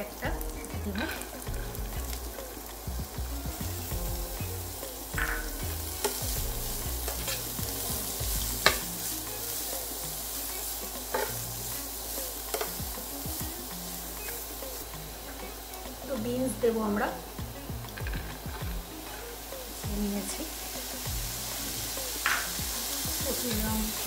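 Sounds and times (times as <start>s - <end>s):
vegetables sizzling in hot oil: 0.0s - 24.0s
spatula scraping and knocking pan: 3.2s - 9.2s, 11.0s - 11.5s.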